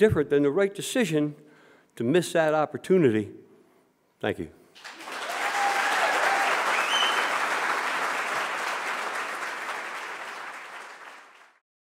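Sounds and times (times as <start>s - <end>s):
audience applauding: 4.8s - 11.6s.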